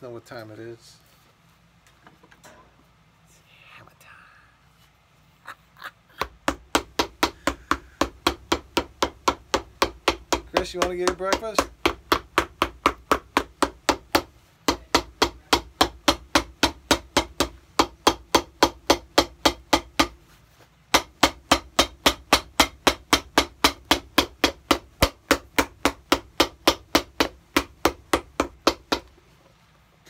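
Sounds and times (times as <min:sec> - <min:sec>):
hammer pounding shoe sole: 0:06.2 - 0:20.2, 0:20.9 - 0:29.2.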